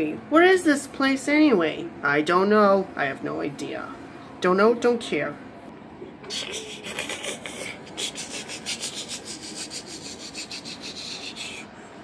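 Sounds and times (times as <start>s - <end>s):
toy scratching on fabric: 8.0s - 11.6s.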